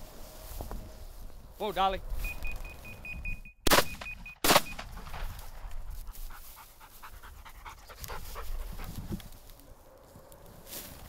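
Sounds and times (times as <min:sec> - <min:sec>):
shotgun shots: 0:03.6 - 0:05.4
dog panting: 0:05.8 - 0:09.2.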